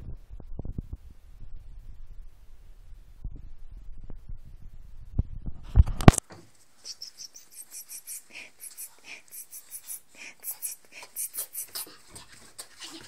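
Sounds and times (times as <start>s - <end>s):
paintbrush scratchy strokes: 6.8s - 13.0s.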